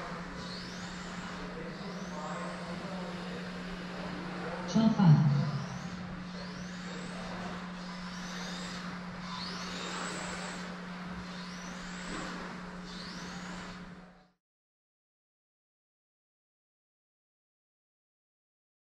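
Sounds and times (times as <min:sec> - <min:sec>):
electric motor whining: 0:00.0 - 0:14.3.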